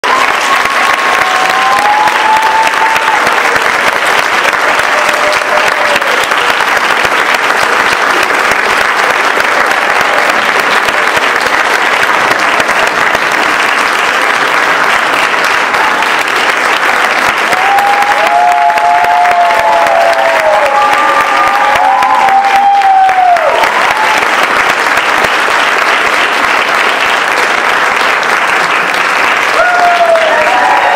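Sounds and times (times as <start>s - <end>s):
audience applauding: 0.0s - 30.9s
crowd calling out: 17.5s - 24.2s, 29.5s - 30.9s.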